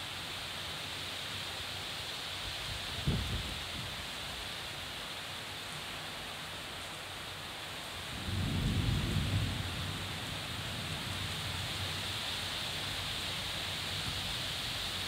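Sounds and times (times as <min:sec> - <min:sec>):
heavy rain: 0:00.0 - 0:15.0
thunder rumble: 0:08.2 - 0:11.2.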